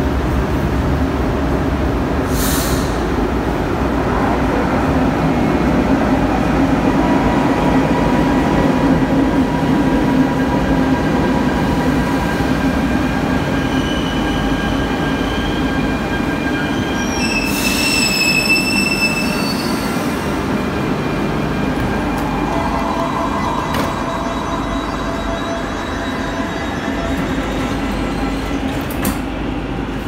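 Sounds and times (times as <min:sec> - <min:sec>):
train braking to a stop: 0:02.2 - 0:03.2, 0:11.3 - 0:29.9
high-pitched brake squeal: 0:13.5 - 0:20.3, 0:22.2 - 0:28.8.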